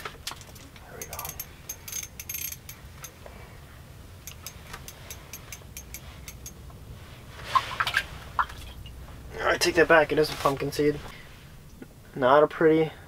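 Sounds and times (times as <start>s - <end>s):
low steady rumble: 0.0s - 13.0s
fishing reel clicks: 1.0s - 3.1s, 4.3s - 6.6s.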